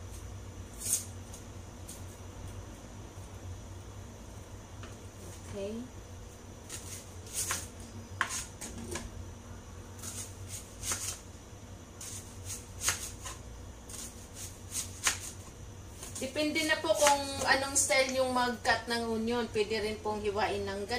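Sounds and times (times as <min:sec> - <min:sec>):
knife slicing onion on board: 0:00.1 - 0:02.1, 0:06.6 - 0:09.1, 0:10.0 - 0:11.2, 0:12.0 - 0:17.6.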